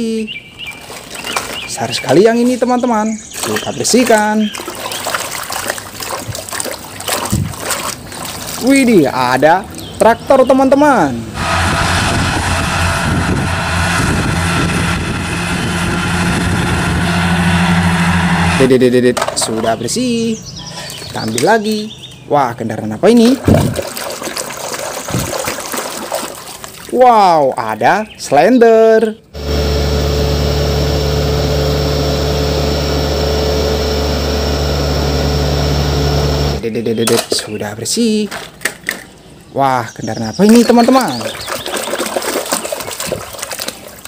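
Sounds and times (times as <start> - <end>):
tractor engine droning under load: 11.2 - 19.3, 29.3 - 36.6.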